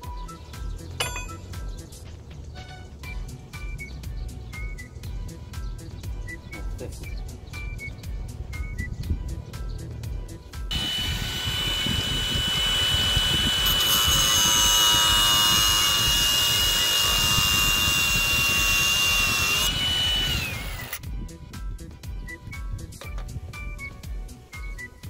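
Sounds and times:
angle grinder whine: 10.7s - 21.0s.

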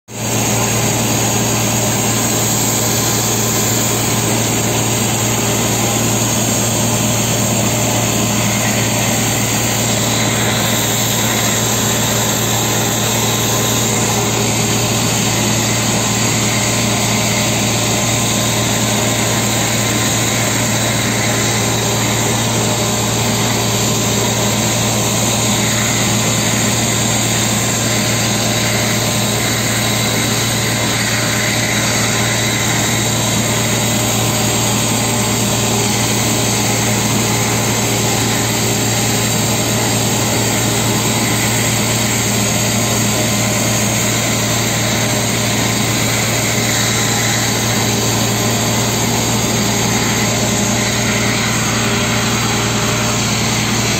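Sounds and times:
engine and blower droning: 0.1s - 53.9s
stone chips blasting from nozzle: 0.2s - 53.9s.

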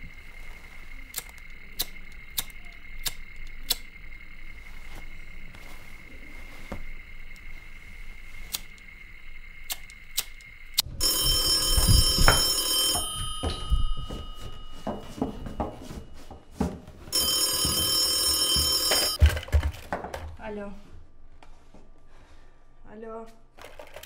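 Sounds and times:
telephone bell ringing: 10.9s - 16.0s, 17.1s - 19.2s.

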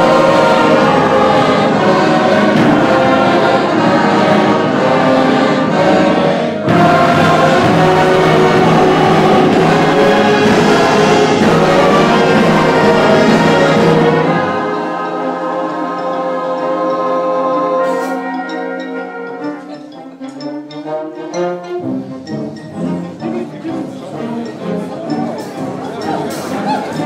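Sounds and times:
choir singing with band: 0.0s - 20.0s.

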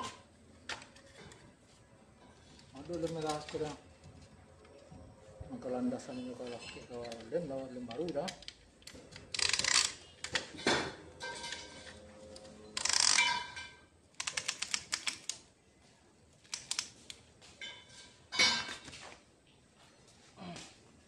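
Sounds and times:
metal tools clinking: 9.4s - 13.8s.

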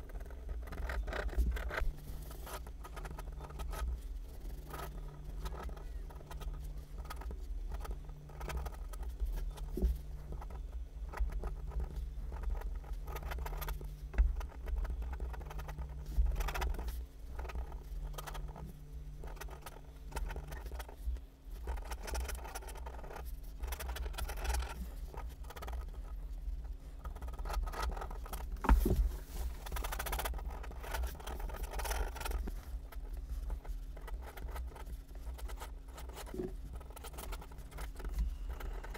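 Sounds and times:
pen scratching on paper: 0.0s - 18.6s, 27.0s - 38.9s
faint low hum: 0.0s - 38.9s
pen ticks on paper: 33.6s - 38.9s.

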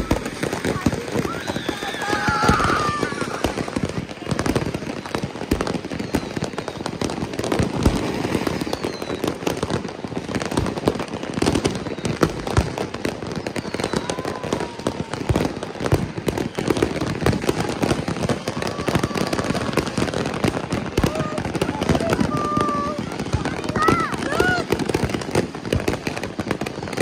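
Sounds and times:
firecrackers crackling: 0.0s - 27.0s
firework booms: 0.0s - 27.0s.

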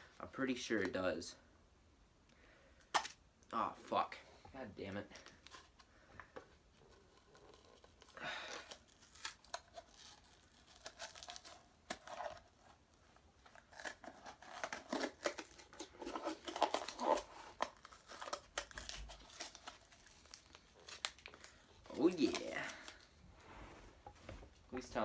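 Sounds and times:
packaging being torn and crinkled: 6.9s - 23.2s.

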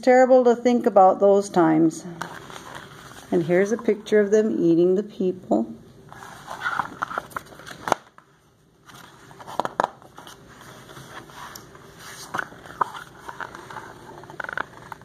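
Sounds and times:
book pages rustling: 2.2s - 4.1s, 6.1s - 15.0s.

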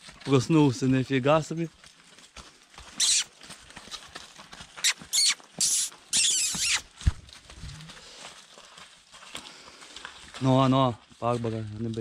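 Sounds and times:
horses squealing and blowing: 2.8s - 8.2s.

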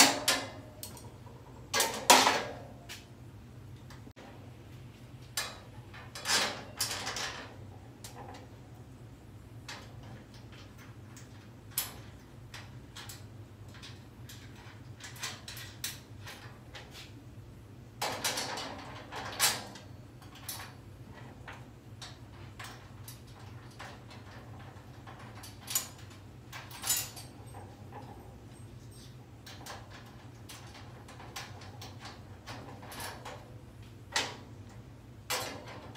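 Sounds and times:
hand tools clinking on metal frame: 0.0s - 3.1s, 21.5s - 33.4s
steady low hum: 0.0s - 35.9s.

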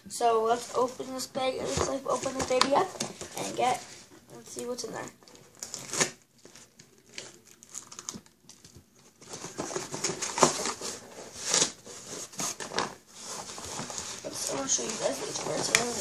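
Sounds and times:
cardboard crinkling: 0.4s - 16.0s
packing tape tearing: 5.5s - 14.2s.

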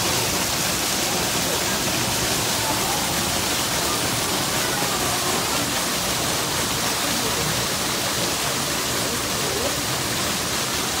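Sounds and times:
small waterfall splashing: 0.0s - 11.0s.

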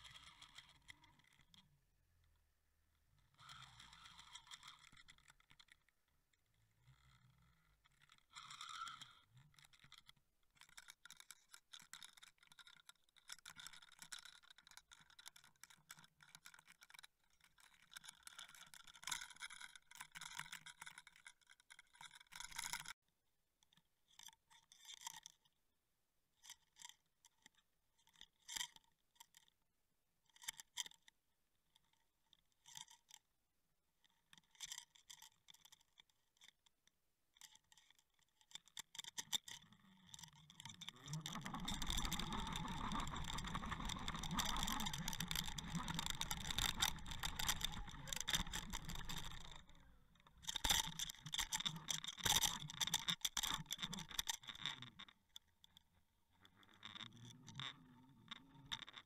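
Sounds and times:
faint underwater crackling: 40.1s - 54.4s
clicks and short scrapes: 40.1s - 54.6s.

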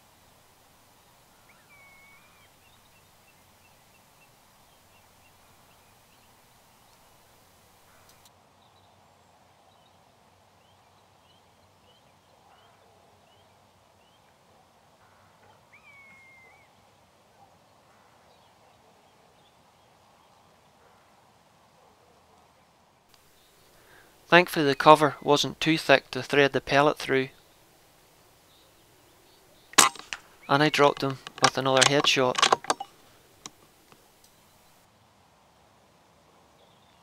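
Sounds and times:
slurred bird calls: 1.3s - 2.9s
bird chirps: 1.4s - 4.0s, 15.4s - 16.8s.

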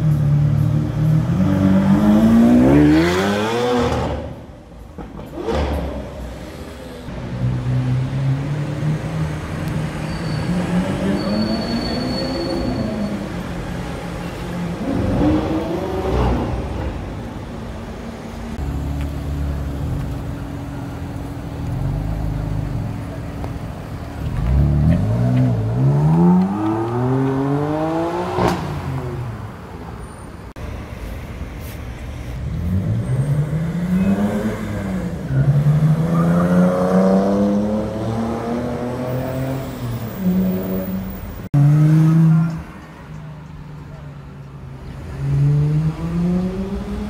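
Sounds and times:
cars accelerating past: 0.0s - 4.4s, 24.2s - 29.5s, 32.4s - 43.0s, 44.9s - 47.0s.

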